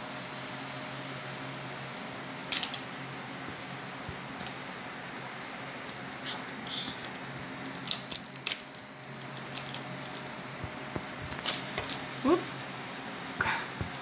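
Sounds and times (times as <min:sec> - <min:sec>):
faint steady hum: 0:00.0 - 0:14.0
wrapper crinkling: 0:07.0 - 0:12.1.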